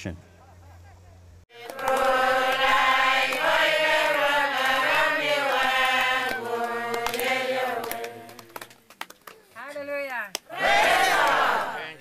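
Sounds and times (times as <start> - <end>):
group of voices chanting: 1.5 - 8.5, 10.5 - 12.0.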